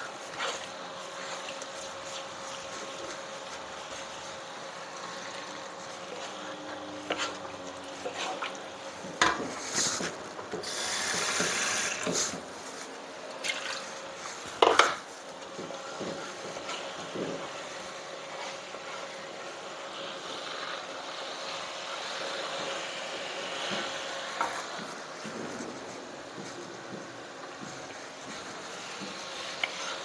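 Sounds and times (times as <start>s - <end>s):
wooden spatula scraping a wok: 0.0s - 12.9s, 14.0s - 30.0s.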